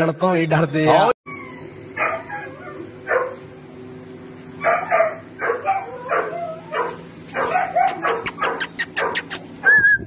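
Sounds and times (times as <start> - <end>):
dog barking: 2.0 - 3.4, 4.6 - 9.4.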